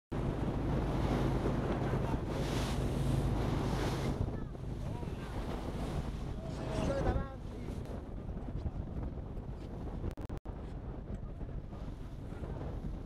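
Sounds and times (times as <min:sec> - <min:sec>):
waves washing: 0:00.1 - 0:08.0
boat engine hum: 0:00.1 - 0:12.9
wind buffeting microphone: 0:00.1 - 0:13.0.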